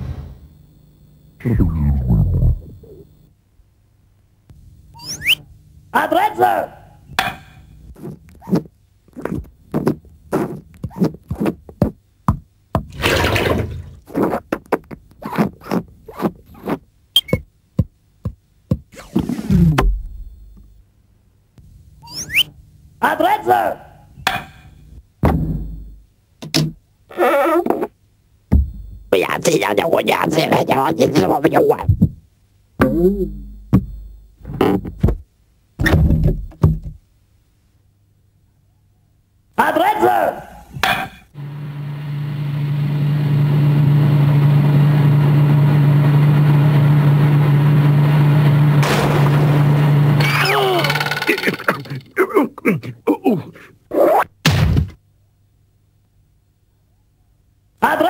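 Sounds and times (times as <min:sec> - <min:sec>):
noisy cartoon effect: 0:01.4 - 0:03.0, 0:50.2 - 0:52.2
pitch-bending sound effect: 0:01.4 - 0:03.0
cartoon character exclamations: 0:50.2 - 0:51.2.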